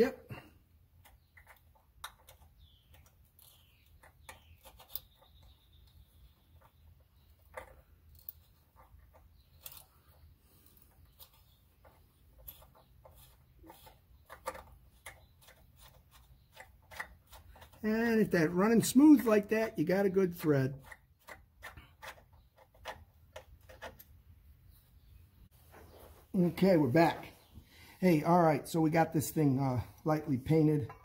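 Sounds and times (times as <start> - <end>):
hand tap clicking and squeaking: 1.0 - 10.2, 10.9 - 17.8, 20.8 - 24.1.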